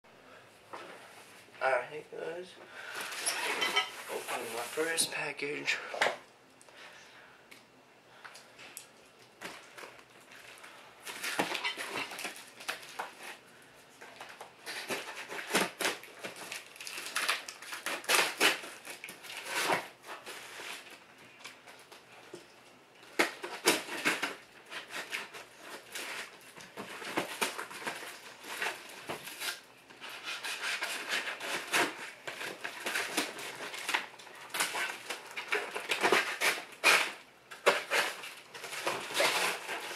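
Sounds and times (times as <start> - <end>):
packing tape tearing: 9.4 - 13.4, 14.1 - 22.0, 23.0 - 39.9.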